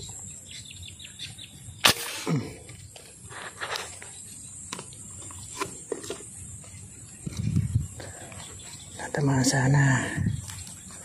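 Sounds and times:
airgun shot: 1.8s - 2.6s.

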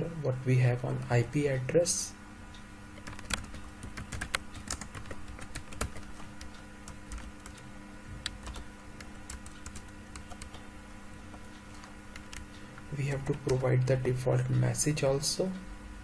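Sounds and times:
computer keyboard typing: 3.0s - 10.7s, 11.3s - 12.5s.

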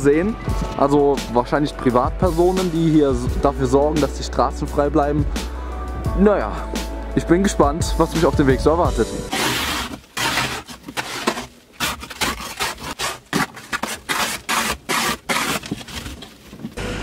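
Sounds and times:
ice scraper on windshield: 9.3s - 15.8s.

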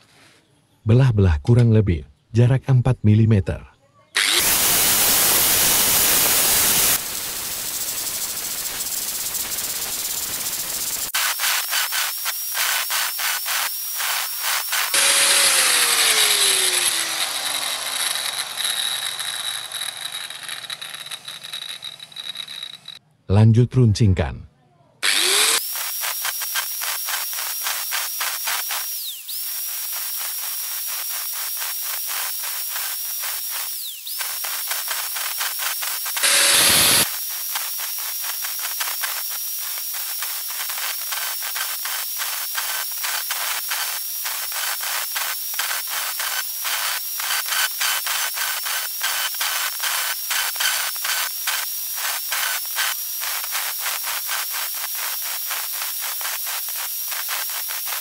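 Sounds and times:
angle grinder whining: 4.2s - 23.0s, 25.0s - 58.0s
grinder disc rasping on steel: 4.2s - 23.0s, 25.0s - 58.0s
harsh grinding: 4.2s - 23.0s, 25.0s - 58.0s.

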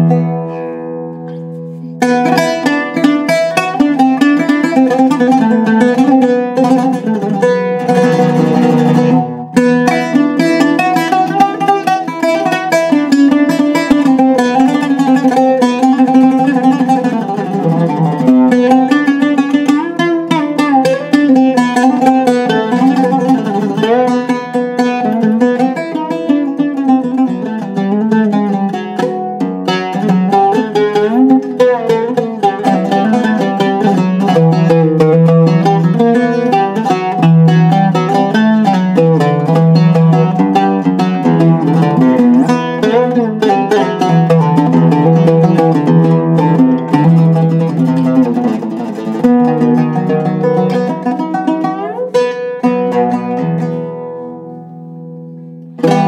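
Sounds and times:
oud picked with a plectrum: 0.0s - 56.0s.

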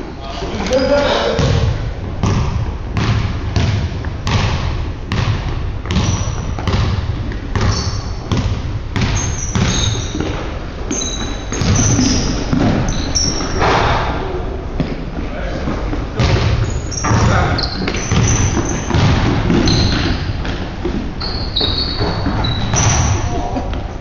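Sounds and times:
basketball bouncing on wooden floor: 1.4s - 13.7s, 16.2s - 23.8s
sneaker squeaks: 5.9s - 13.9s, 16.2s - 23.8s.

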